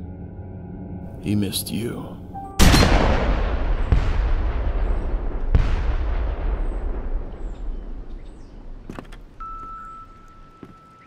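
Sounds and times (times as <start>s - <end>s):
echoing gunshots: 2.6s - 9.4s.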